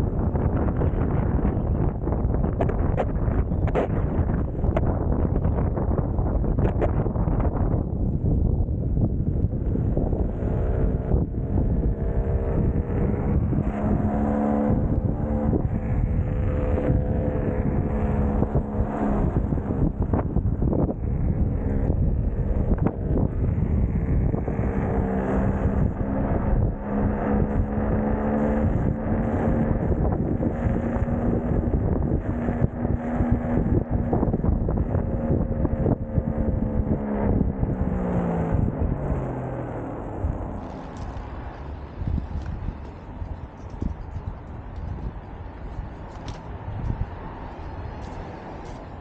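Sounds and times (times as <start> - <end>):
wind buffeting microphone: 0.0 - 49.0
electric motor whine: 9.5 - 44.3
tyre rumble on asphalt: 40.3 - 49.0.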